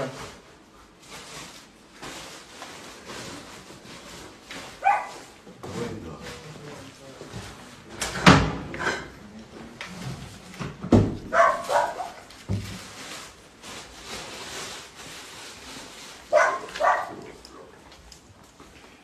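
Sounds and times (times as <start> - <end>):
dog barking: 4.8 - 5.3, 11.3 - 12.2, 16.3 - 17.3
furniture knocked and thumped: 10.6 - 11.4.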